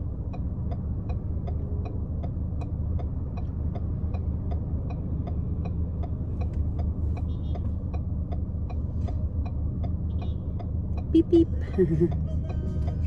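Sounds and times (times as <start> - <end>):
idling car hum: 0.0 - 13.0
turn signal ticking: 0.0 - 13.0.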